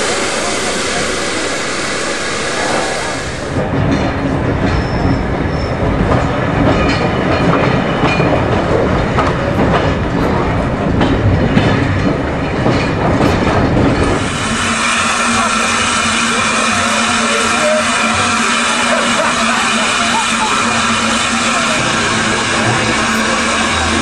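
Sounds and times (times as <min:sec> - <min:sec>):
train wheels rumbling and clattering: 0:00.0 - 0:24.0
high wheel squeal: 0:04.7 - 0:05.8.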